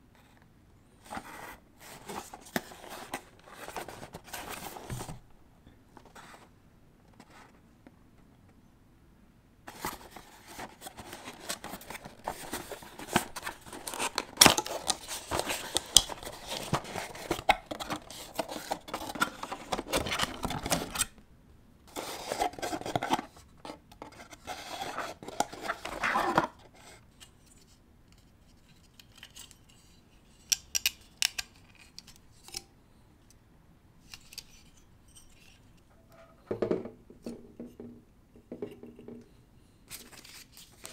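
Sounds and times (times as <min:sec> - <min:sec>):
packaging rustling and scraping: 0:01.0 - 0:05.2, 0:09.7 - 0:21.1, 0:21.9 - 0:27.0, 0:39.9 - 0:40.9.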